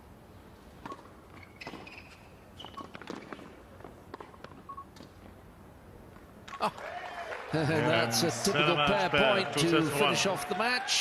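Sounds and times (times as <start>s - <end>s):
shoes squeaking on court: 0.8s - 5.3s.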